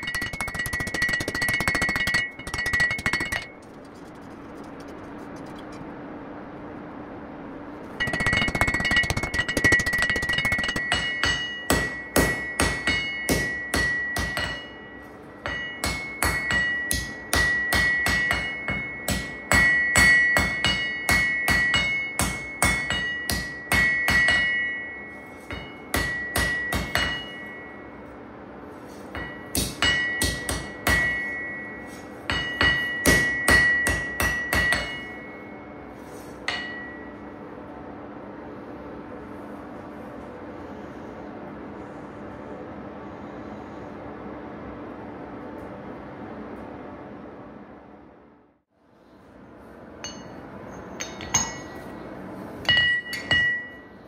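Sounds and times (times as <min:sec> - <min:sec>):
anvil ringing: 0:00.0 - 0:03.6, 0:08.0 - 0:28.0, 0:29.2 - 0:35.7, 0:36.5 - 0:37.2, 0:50.0 - 0:51.8, 0:52.6 - 0:54.0
hammer striking blade on anvil: 0:00.0 - 0:03.6, 0:08.0 - 0:27.8, 0:29.1 - 0:35.7, 0:36.4 - 0:37.2, 0:50.0 - 0:51.8, 0:52.6 - 0:54.0.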